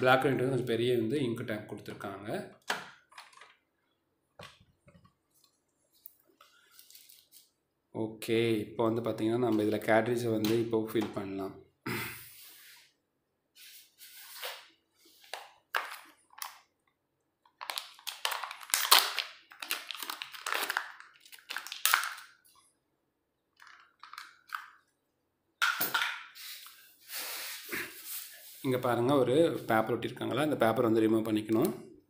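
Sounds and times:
packaging crinkling and rustling: 6.3s - 7.5s, 15.3s - 22.5s, 23.6s - 24.8s.

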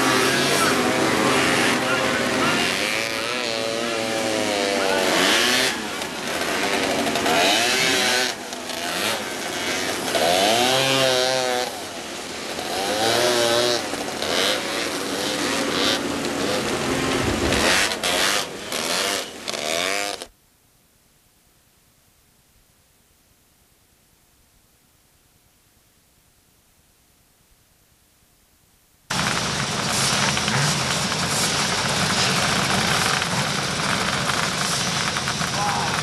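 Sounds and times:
buggy engines revving: 0.0s - 20.3s, 29.1s - 36.0s.

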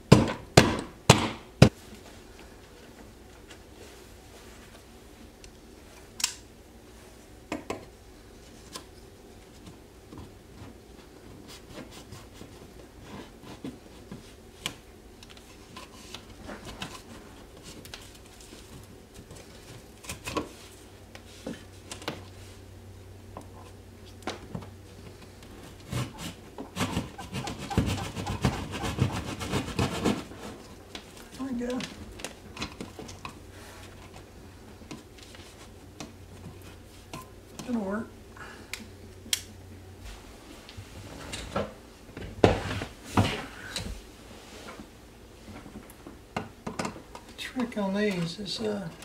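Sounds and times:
hand tool rasping wall: 25.9s - 30.3s.

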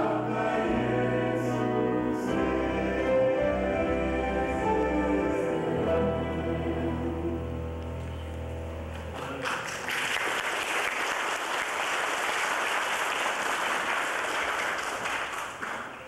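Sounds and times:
audience applauding: 9.1s - 16.0s.

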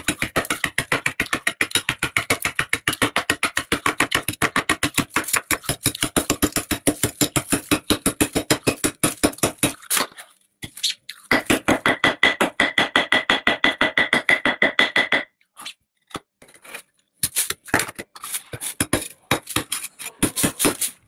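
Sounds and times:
freezer frost being scraped: 16.5s - 21.0s.

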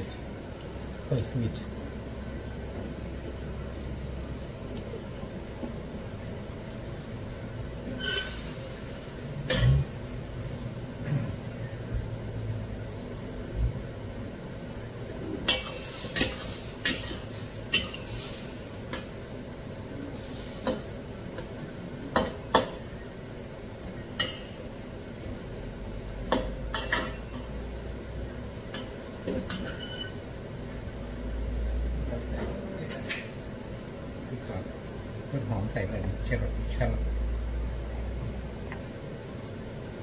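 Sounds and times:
frying sizzle: 0.0s - 40.0s
spatula scraping wok: 7.9s - 9.9s, 15.4s - 19.0s.

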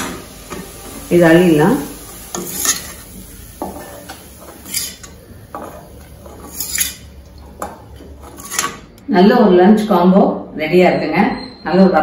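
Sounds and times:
ladle scraping a pan: 2.2s - 3.2s, 3.8s - 7.2s, 8.0s - 8.9s.

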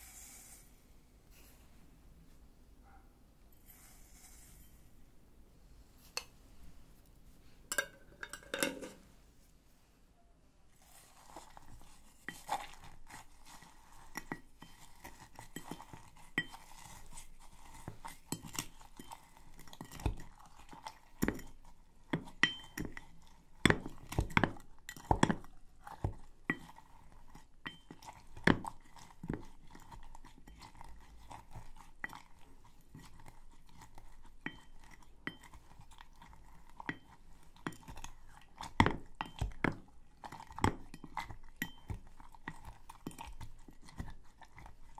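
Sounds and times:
spoon knocking on glass: 7.7s - 9.0s
crunching and scraping of sugar: 10.7s - 44.9s.

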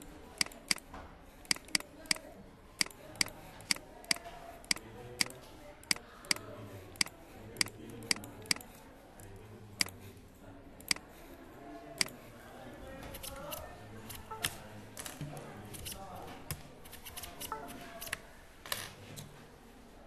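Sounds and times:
computer mouse clicking: 0.0s - 8.8s, 10.8s - 11.1s, 13.1s - 18.2s
faint low background noise: 0.0s - 20.0s.

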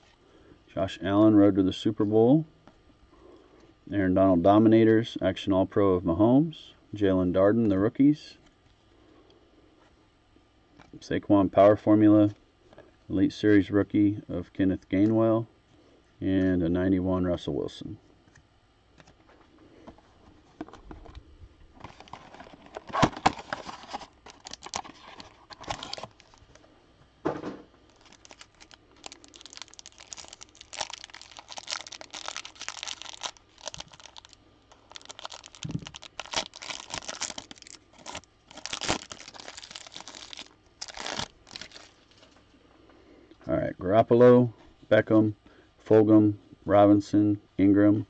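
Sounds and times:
cardboard and plastic wrapper tearing: 21.8s - 26.6s, 27.9s - 42.3s
wrapper crinkling: 21.8s - 26.6s, 27.9s - 42.4s.

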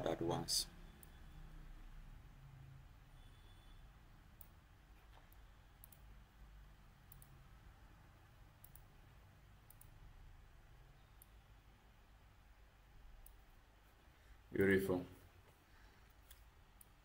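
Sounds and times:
low steady hum: 0.0s - 17.0s
computer mouse clicks: 4.4s - 6.1s, 7.0s - 7.4s, 8.6s - 9.0s, 9.6s - 10.0s, 13.2s - 13.4s.

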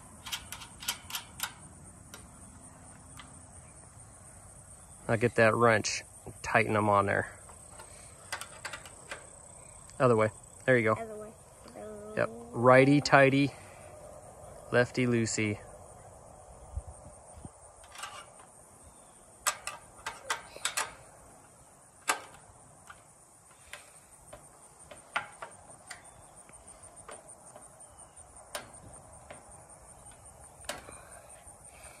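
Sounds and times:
insects trilling: 0.0s - 32.0s
wrench clicking on nuts: 0.1s - 2.3s, 19.4s - 21.0s.

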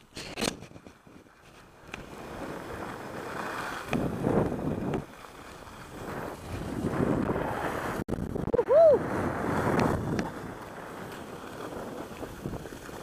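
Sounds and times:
wind rushing over microphone: 0.0s - 13.0s
skis hissing over snow: 1.3s - 8.0s, 9.0s - 13.0s.

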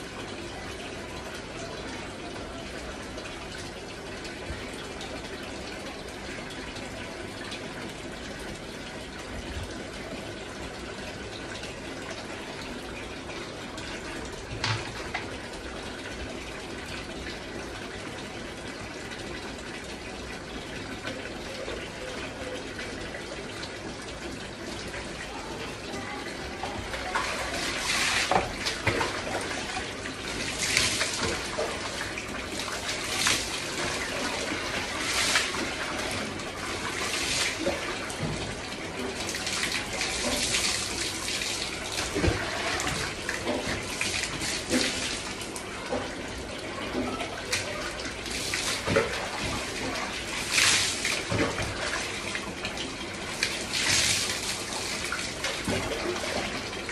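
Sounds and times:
tap running into bucket: 0.0s - 56.9s
water splashing onto wet floor: 26.0s - 46.1s, 46.9s - 56.9s.

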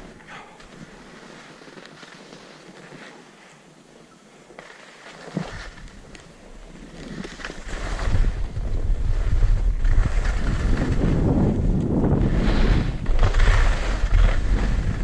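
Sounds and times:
skis sliding over packed snow: 0.0s - 15.0s
wind buffeting microphone: 7.6s - 15.0s.

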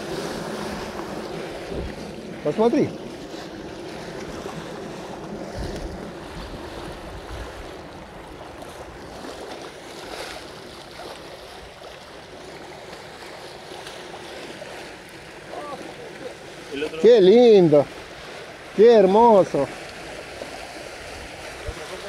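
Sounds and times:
wind buffeting microphone: 0.0s - 9.3s
river water along shore: 0.0s - 22.0s
wind: 0.0s - 22.0s.

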